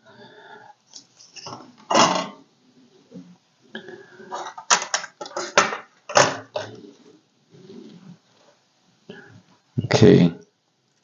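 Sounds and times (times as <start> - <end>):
computer parts knocking and scraping: 4.3 - 6.8.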